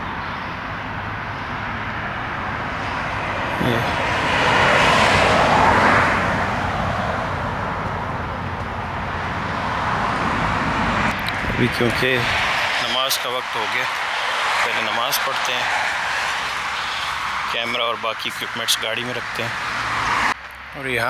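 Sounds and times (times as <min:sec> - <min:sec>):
outdoor background noise: 0:00.0 - 0:21.0
tyre hiss on wet road: 0:15.6 - 0:17.5.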